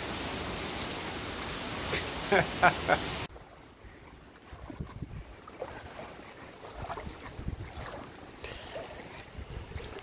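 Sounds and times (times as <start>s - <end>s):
boots sloshing through water: 3.3s - 10.0s.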